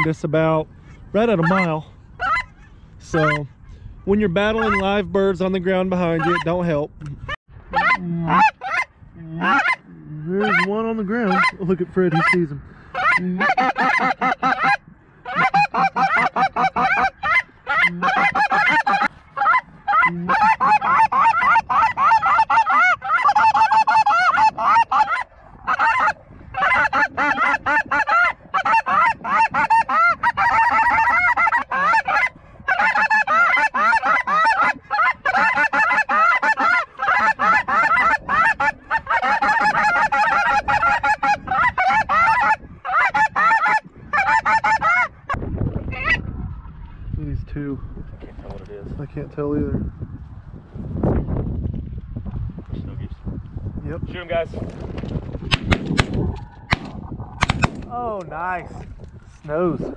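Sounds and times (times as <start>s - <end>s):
geese honking: 1.2s - 3.5s, 4.4s - 5.0s, 6.0s - 6.6s, 7.7s - 45.3s.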